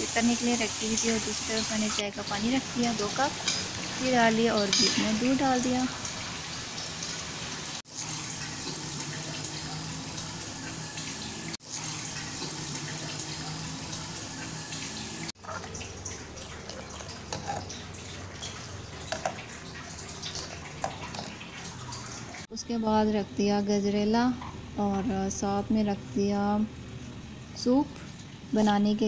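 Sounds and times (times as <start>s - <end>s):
spoon stirring a metal pan: 17.0s - 17.8s.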